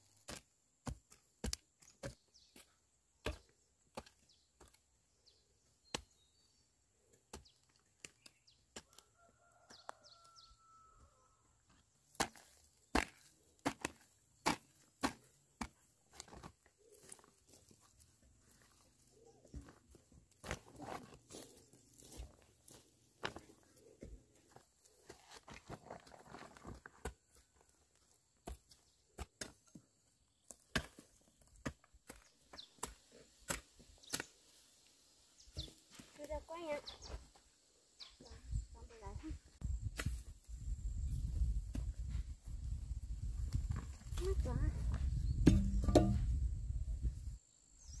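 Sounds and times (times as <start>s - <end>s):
scuffing of loose soil: 11.7s - 47.4s
hoe chopping into soil: 12.1s - 16.5s, 30.5s - 34.3s, 39.9s - 40.3s, 45.4s - 46.4s.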